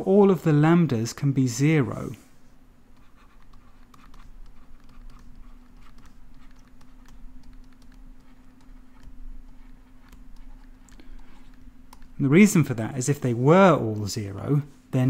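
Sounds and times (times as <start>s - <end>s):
steady low hum: 0.0s - 15.0s
stylus tapping on tablet screen: 3.0s - 12.2s.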